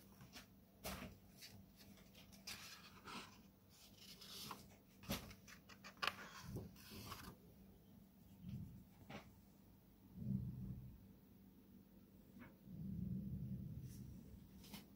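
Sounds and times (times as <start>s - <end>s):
book pages rustling: 0.2s - 7.4s.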